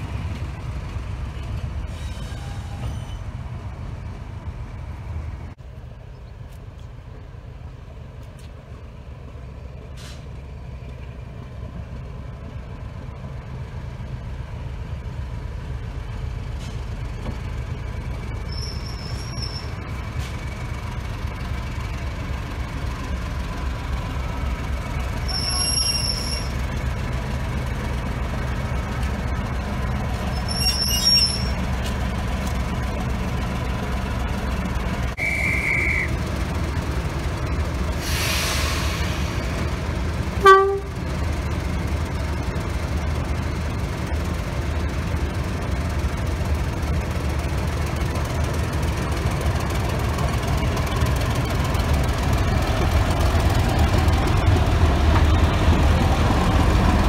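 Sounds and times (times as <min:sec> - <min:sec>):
diesel locomotive engine running: 0:00.0 - 0:57.0
wheels squealing: 0:01.9 - 0:03.4, 0:18.4 - 0:20.3, 0:25.2 - 0:26.6, 0:30.2 - 0:31.7.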